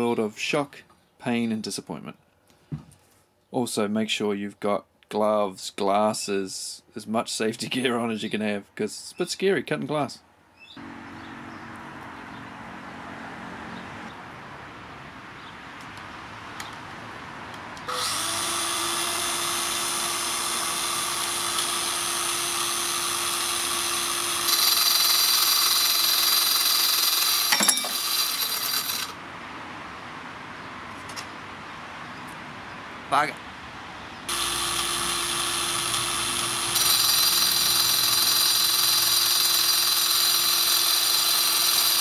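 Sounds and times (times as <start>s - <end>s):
glass cutter motor whine: 17.9s - 29.2s, 34.3s - 42.0s.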